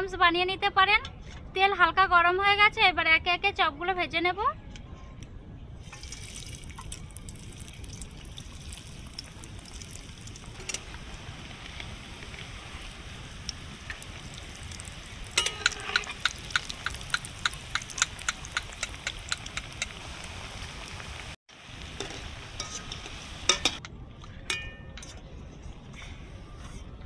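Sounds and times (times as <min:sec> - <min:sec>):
food sizzling in hot oil: 0:05.8 - 0:23.8
metal spatula clicking against wok: 0:15.4 - 0:19.9.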